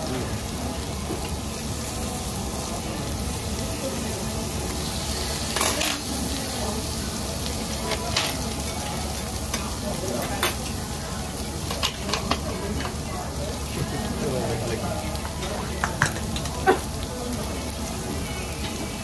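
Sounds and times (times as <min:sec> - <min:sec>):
meat sizzling on grill plate: 0:00.0 - 0:19.0.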